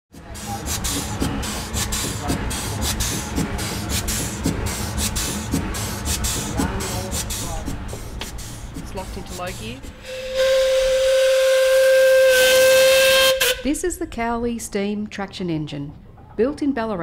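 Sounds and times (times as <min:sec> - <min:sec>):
steam engine exhaust chuffing: 0:00.1 - 0:14.0
low mechanical rumble: 0:00.2 - 0:12.3.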